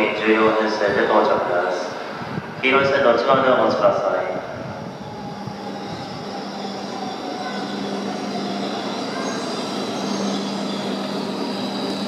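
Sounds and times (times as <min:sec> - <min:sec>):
train running noise: 0:00.0 - 0:12.0
high whining tones: 0:04.4 - 0:12.0.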